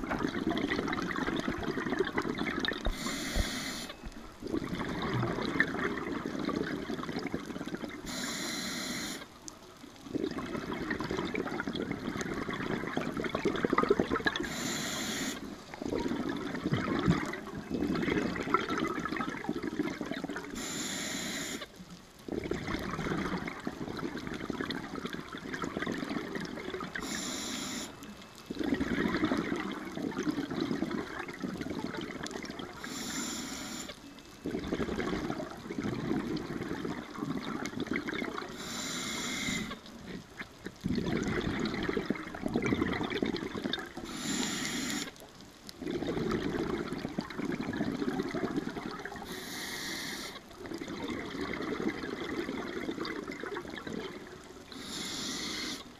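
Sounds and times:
regulator hissing inhalations: 2.9 - 4.0, 8.1 - 9.3, 14.5 - 15.4, 20.6 - 21.7, 27.0 - 28.0, 32.8 - 34.0, 38.5 - 39.8, 44.0 - 45.1, 49.3 - 50.4, 54.7 - 55.9
gurgling exhaust bubbles: 4.4 - 8.0, 10.1 - 14.5, 15.8 - 20.5, 22.3 - 27.0, 28.6 - 32.8, 34.4 - 38.5, 40.8 - 44.0, 45.8 - 49.3, 50.6 - 54.3.

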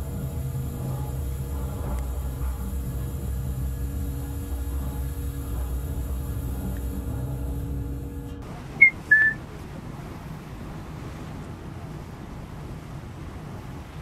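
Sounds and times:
low machinery rumble: 0.0 - 14.0
steady hum: 0.0 - 14.0
short high beeps: 8.8 - 9.4.

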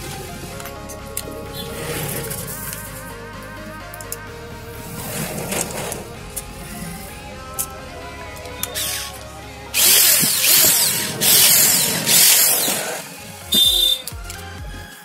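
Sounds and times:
angle grinder whirring: 0.0 - 14.2
high whine: 0.0 - 14.4
faint background music: 0.0 - 15.0.

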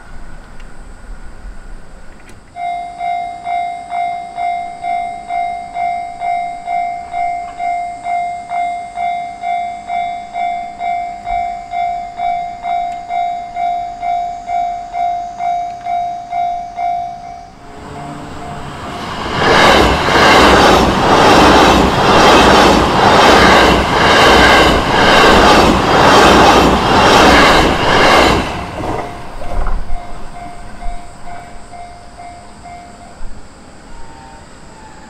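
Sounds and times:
level crossing warning bell: 2.6 - 18.9, 29.0 - 34.4.

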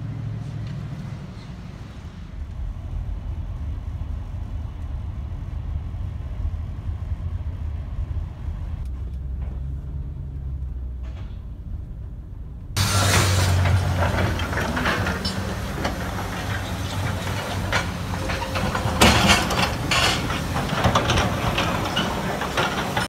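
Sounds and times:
excavator diesel engine running: 0.0 - 23.0
concrete rubble knocking and clattering: 12.8 - 23.0.

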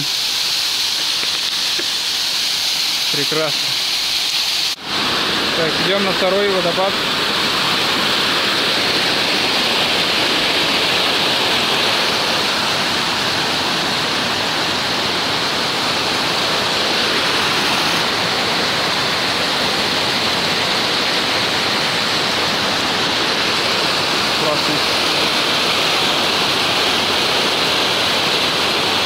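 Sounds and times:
waterfall rushing: 0.0 - 29.0.

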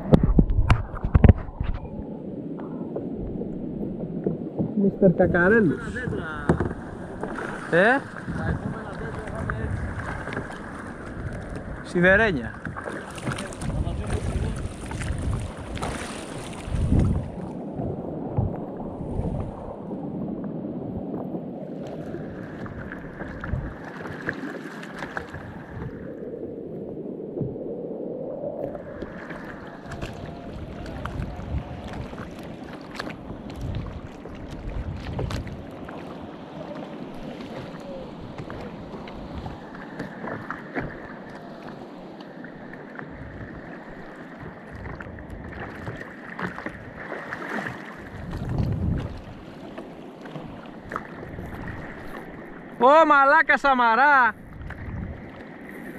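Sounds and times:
wind on microphone: 0.0 - 52.8, 54.4 - 55.9
water lapping against kayak hull: 0.0 - 55.9
small knocks and splashes: 12.5 - 17.1, 29.0 - 36.2, 44.4 - 52.3.

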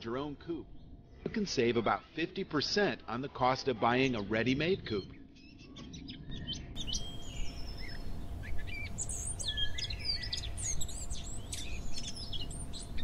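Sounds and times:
birds chirping and twittering: 0.0 - 13.0
low background rumble: 4.0 - 13.0.

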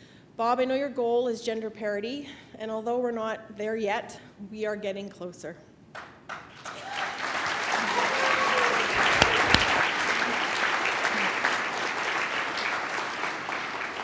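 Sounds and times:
audience applauding: 6.6 - 14.0
sharp knocks: 9.0 - 9.8.

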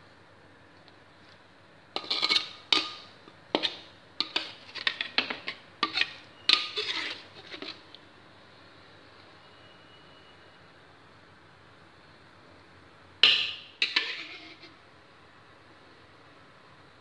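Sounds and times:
metal spatula scraping a wok: 2.0 - 7.9, 13.2 - 14.8.

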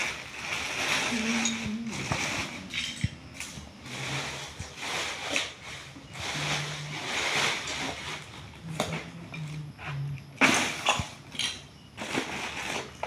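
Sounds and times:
plastic bricks clattering: 0.0 - 9.1.

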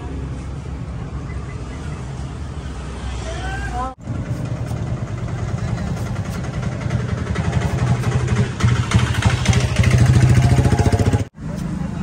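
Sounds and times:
engine idling: 4.0 - 11.3.

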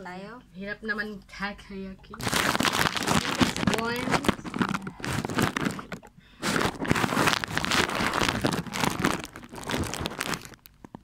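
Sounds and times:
paper and plastic crinkling: 2.2 - 11.0.

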